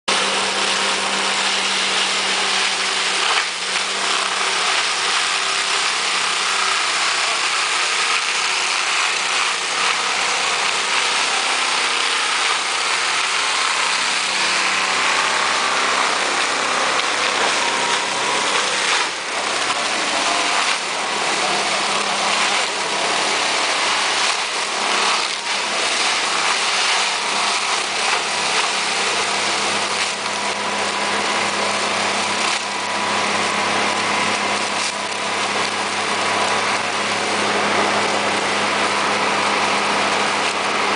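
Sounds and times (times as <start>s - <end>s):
shredder chopping branches: 0.1s - 40.9s
tractor engine hum: 12.8s - 40.9s.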